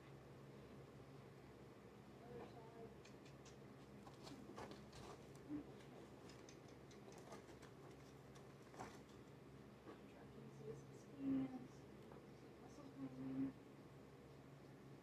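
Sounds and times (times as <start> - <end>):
faint ticks and taps: 2.4 - 10.1.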